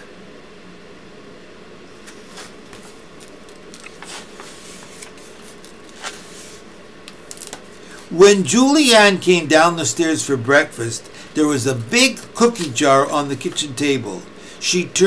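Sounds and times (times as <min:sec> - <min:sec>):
room hiss: 0:00.0 - 0:15.0
paper pages rustling: 0:02.0 - 0:08.1.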